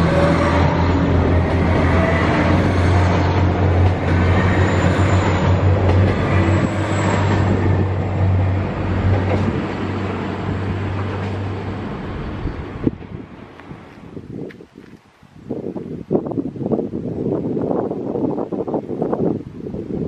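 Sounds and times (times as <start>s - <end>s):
train wheels rolling: 0.0s - 14.1s
diesel train engine drone: 0.0s - 14.2s.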